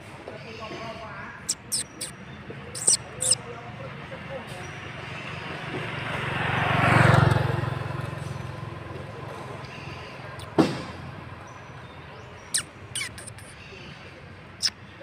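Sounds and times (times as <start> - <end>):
vehicle passing: 5.6 - 11.5.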